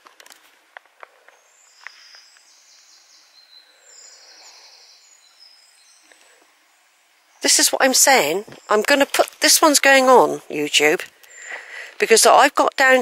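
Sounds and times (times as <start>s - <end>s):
faint high-pitched chirping: 1.3s - 8.9s.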